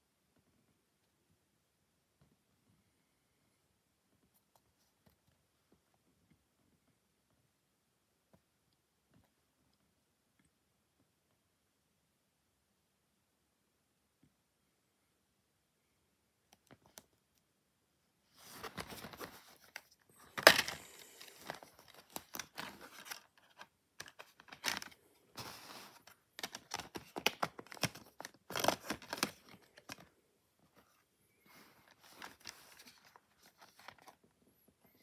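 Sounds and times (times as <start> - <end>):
plastic case crinkling: 18.5 - 30.1.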